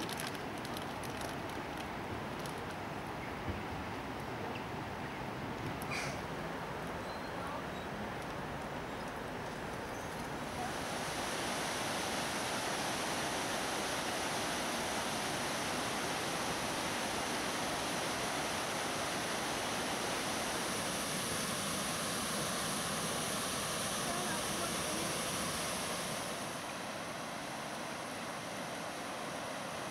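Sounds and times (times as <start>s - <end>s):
water rushing over rock steps: 10.3s - 29.9s.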